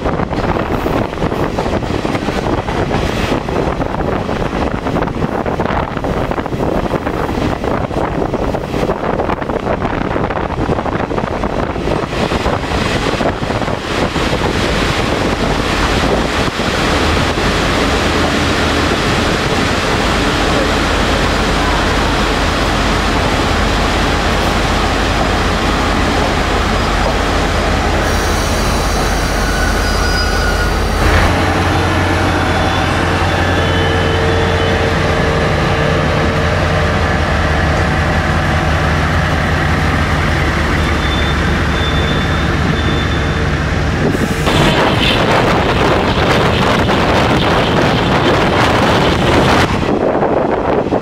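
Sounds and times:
wind buffeting at window: 0:00.0 - 0:28.1, 0:43.7 - 0:51.0
locomotive engine rumble: 0:00.0 - 0:51.0
wheel-on-rail noise: 0:00.0 - 0:51.0.

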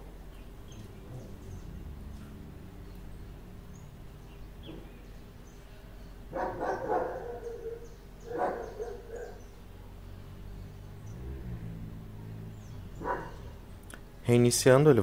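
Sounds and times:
low steady hum: 0:00.0 - 0:15.0
dog barking: 0:06.3 - 0:09.5, 0:13.0 - 0:13.6.

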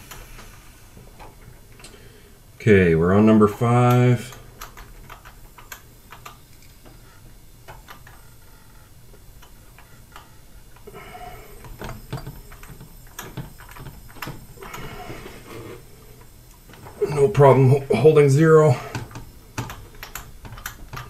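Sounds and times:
air hissing: 0:00.0 - 0:02.5, 0:10.0 - 0:20.0
ratchet clicking: 0:19.1 - 0:21.0.

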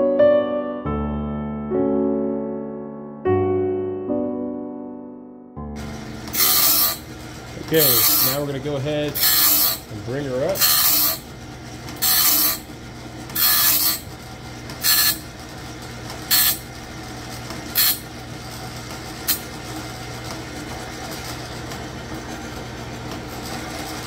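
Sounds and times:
electric motor running: 0:05.8 - 0:24.0
grinding wheel on saw blade: 0:05.8 - 0:24.0.

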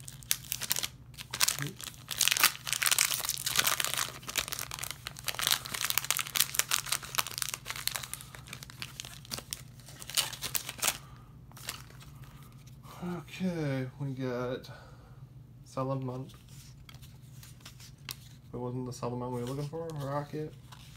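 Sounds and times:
foil wrapper crinkling and tearing: 0:00.0 - 0:12.3.

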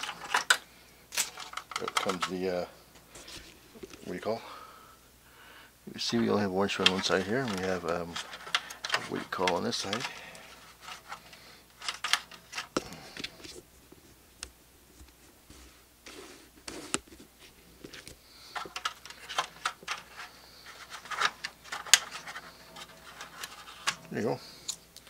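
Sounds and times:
scraping rustles: 0:06.1 - 0:14.2, 0:14.9 - 0:24.9.

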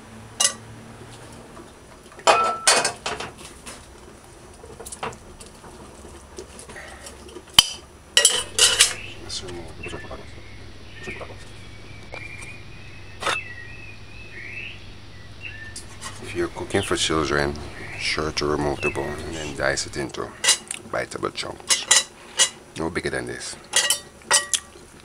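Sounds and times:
metal utensil clinking on plate: 0:00.4 - 0:00.6, 0:07.6 - 0:09.0, 0:21.7 - 0:22.6, 0:23.7 - 0:24.7
ceramic plate handled: 0:08.2 - 0:09.0.

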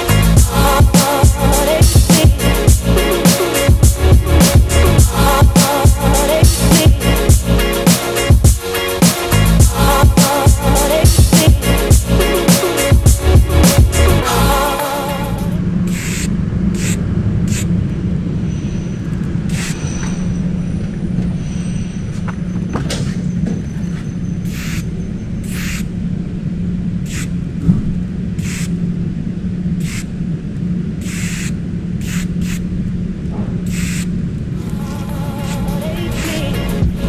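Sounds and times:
low hum: 0:00.0 - 0:08.6, 0:09.3 - 0:37.0
spray paint can hissing: 0:00.0 - 0:17.7, 0:19.5 - 0:19.9, 0:24.5 - 0:24.8, 0:25.5 - 0:25.9, 0:27.1 - 0:27.4, 0:28.4 - 0:28.8, 0:29.8 - 0:30.1, 0:31.0 - 0:32.7, 0:33.6 - 0:34.1.

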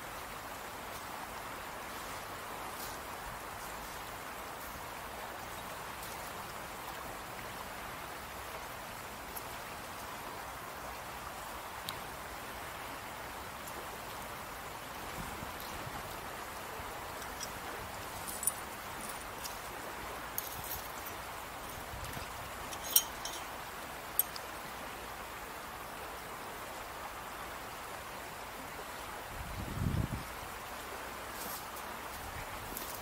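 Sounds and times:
river water rushing: 0:00.0 - 0:29.5, 0:30.3 - 0:33.0
faint ticks: 0:11.8 - 0:12.1, 0:24.2 - 0:24.5.

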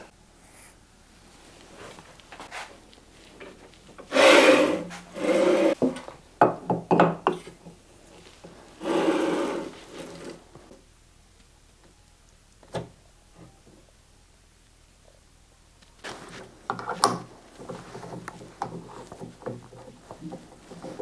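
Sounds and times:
wooden knocks: 0:16.7 - 0:21.0.

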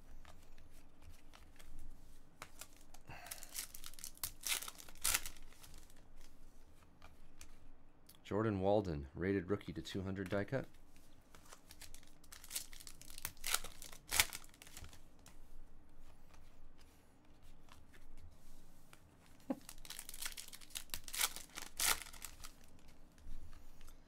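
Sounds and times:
foil wrapper crinkling and tearing: 0:02.5 - 0:06.0, 0:11.5 - 0:15.0, 0:19.5 - 0:22.9.

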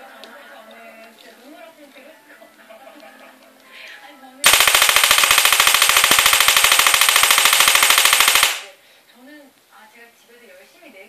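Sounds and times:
high-voltage sparks snapping: 0:04.4 - 0:08.7.

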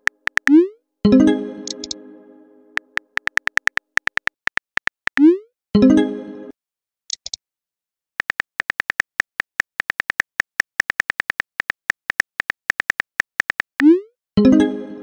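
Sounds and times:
phone keyboard taps: 0:00.0 - 0:00.6, 0:02.8 - 0:05.2, 0:08.2 - 0:13.8.

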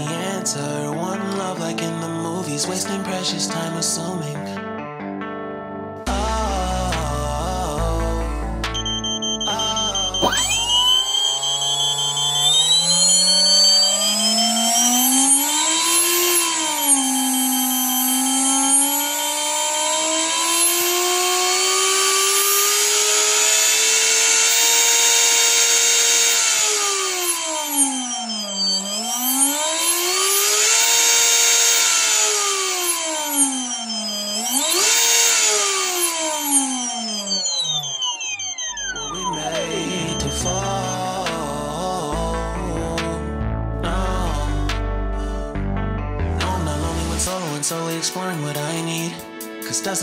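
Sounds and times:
electric motor whine: 0:08.8 - 0:42.0.

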